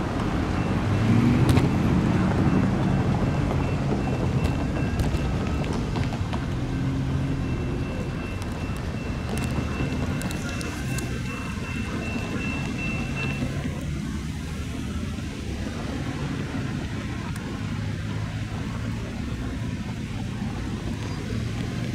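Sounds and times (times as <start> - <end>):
freight train rumbling: 0.0 - 21.9
road traffic: 0.0 - 21.9.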